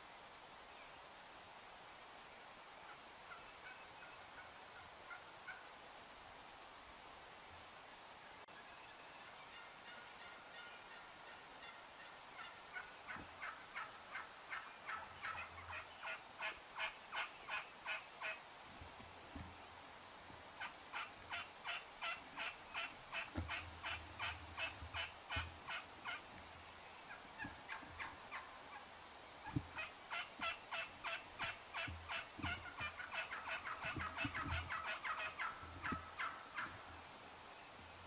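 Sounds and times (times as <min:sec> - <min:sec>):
wild turkeys yelping: 0:09.3 - 0:18.4, 0:20.6 - 0:36.9.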